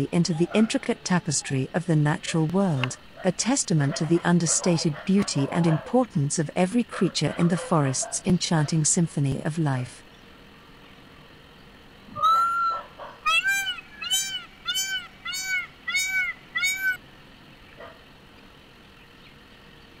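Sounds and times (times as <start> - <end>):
peafowl calling: 12.1 - 17.0.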